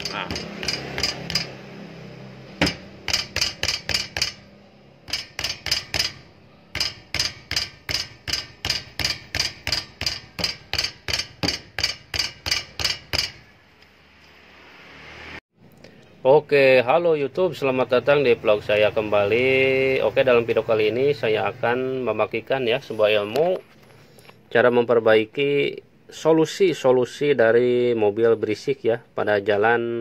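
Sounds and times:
rapid sharp metallic knocks: 0.0 - 1.7, 2.5 - 13.5.

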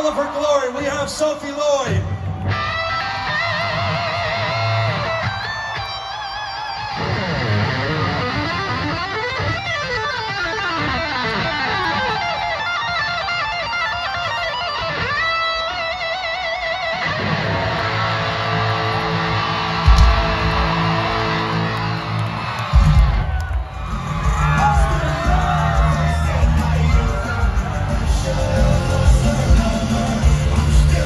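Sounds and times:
electric guitar solo: 2.0 - 22.4.

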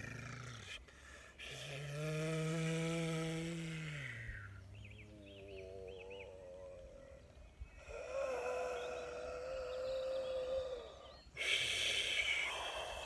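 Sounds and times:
breathy rush of breath: 0.8 - 1.7, 7.7 - 9.6, 10.9 - 13.0.

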